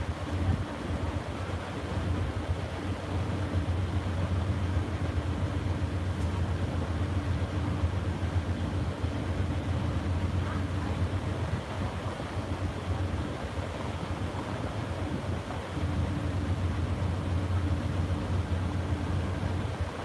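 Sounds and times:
passenger train idling drone: 0:00.0 - 0:20.0.

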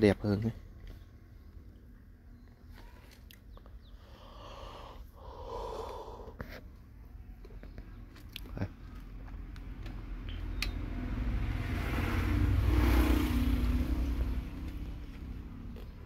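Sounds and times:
passing vehicle engine: 0:09.1 - 0:16.0.

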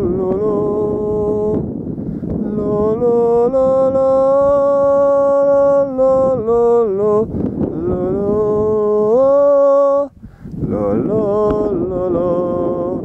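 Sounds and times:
man singing held notes: 0:00.0 - 0:01.7, 0:02.3 - 0:13.0
wind on microphone: 0:00.0 - 0:13.0.

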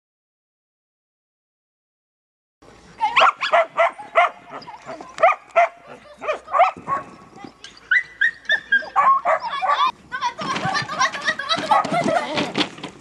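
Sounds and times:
dog barking excitedly: 0:03.0 - 0:09.9, 0:11.4 - 0:12.4.

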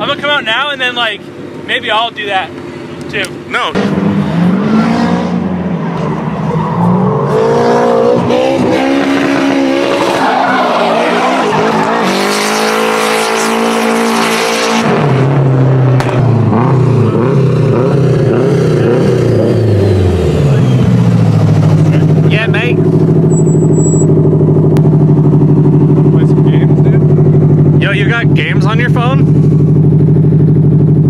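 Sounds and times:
car engine revving: 0:00.0 - 0:31.0
tyres skidding on asphalt: 0:03.8 - 0:15.3.

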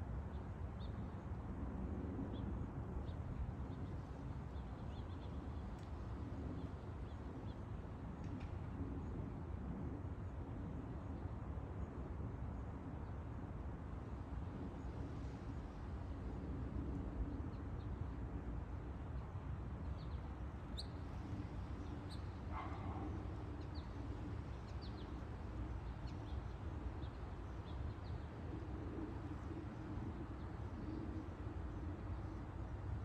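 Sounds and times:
small birds chirping: 0:19.9 - 0:28.4
dog barking: 0:22.5 - 0:23.2.

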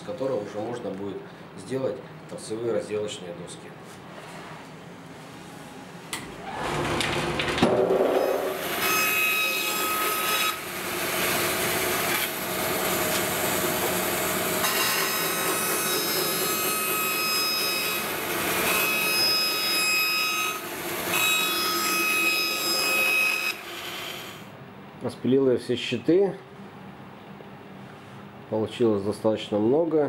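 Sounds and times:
bandsaw cutting wood: 0:07.7 - 0:24.5.

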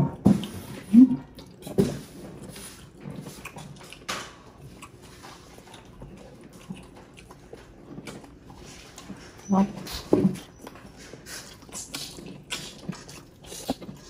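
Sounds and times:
chewing and lip smacking: 0:00.0 - 0:14.0.

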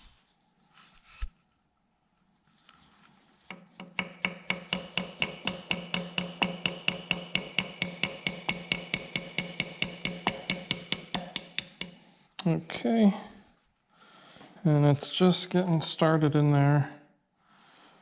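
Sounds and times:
small hammer tapping metal: 0:03.5 - 0:12.0.

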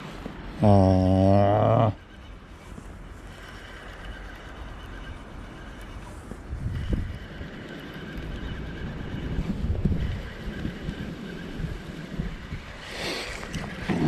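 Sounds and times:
fishing reel cranking: 0:00.6 - 0:14.0
wind buffeting microphone: 0:03.3 - 0:14.0.

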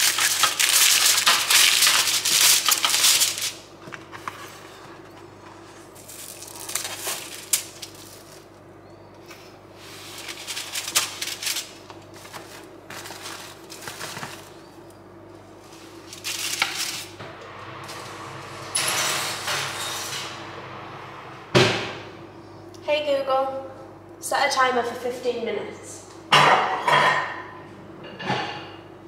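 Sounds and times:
utensils clattering on a tray: 0:00.0 - 0:03.6
aluminium foil crinkling: 0:00.0 - 0:03.7, 0:05.6 - 0:08.6, 0:09.9 - 0:14.9, 0:15.6 - 0:17.2
faint steady hum: 0:00.0 - 0:26.4.

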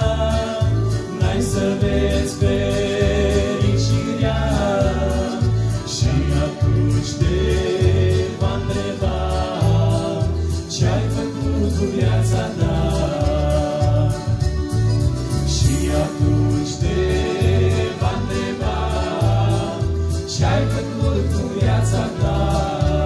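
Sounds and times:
male vocal group singing in harmony: 0:00.0 - 0:23.0
rhythmic low bass line: 0:00.0 - 0:23.0.

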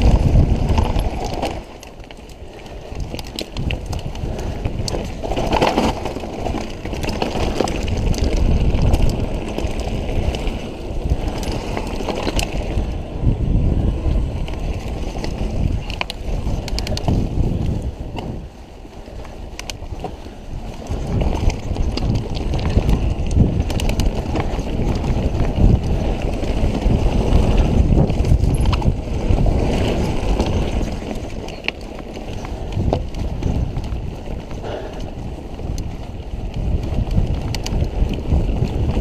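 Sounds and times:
bike clicks and rattles: 0:00.0 - 0:39.0
bike tyre rumble: 0:00.0 - 0:39.0
wind buffeting microphone: 0:00.0 - 0:39.0.

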